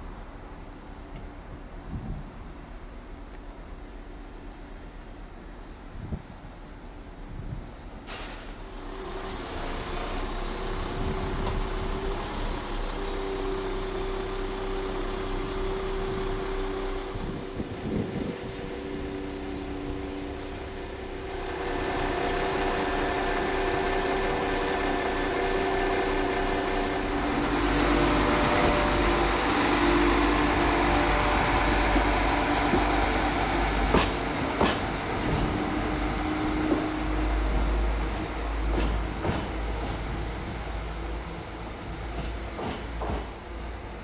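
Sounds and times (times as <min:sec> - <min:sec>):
diesel train engine drone: 0:00.0 - 0:44.0
train wheels clattering over rail joints: 0:27.1 - 0:40.9, 0:41.8 - 0:43.8.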